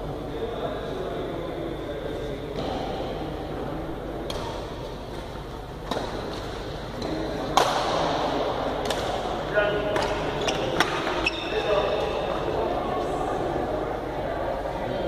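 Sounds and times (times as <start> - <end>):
background murmur: 0.0 - 15.0
racket hitting shuttlecock: 4.2 - 11.2.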